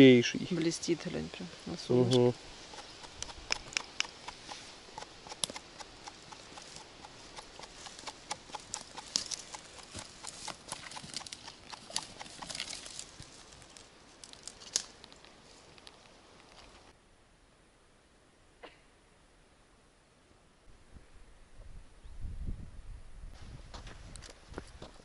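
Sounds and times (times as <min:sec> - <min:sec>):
footsteps on forest floor: 0:02.1 - 0:15.8
twigs snapping underfoot: 0:07.9 - 0:16.7.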